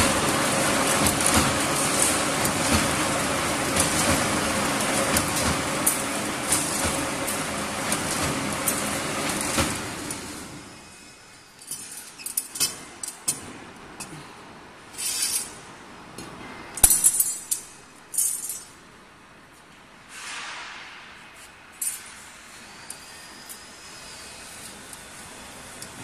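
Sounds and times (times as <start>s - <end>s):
steel rods clinking together: 16.2s - 18.8s.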